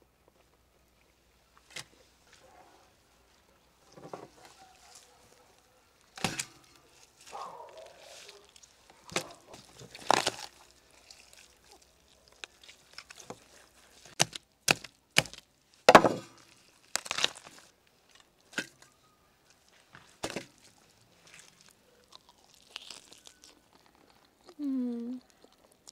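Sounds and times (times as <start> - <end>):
meat tearing: 6.0 - 15.5, 16.3 - 18.6, 20.0 - 24.6
skin and bones cracking: 6.0 - 15.5, 16.3 - 18.9, 19.5 - 24.6, 25.2 - 25.9.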